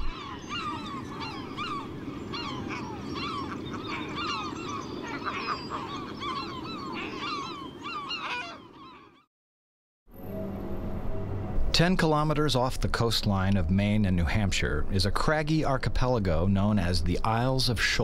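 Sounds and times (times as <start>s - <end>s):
gulls calling: 0.0s - 9.3s.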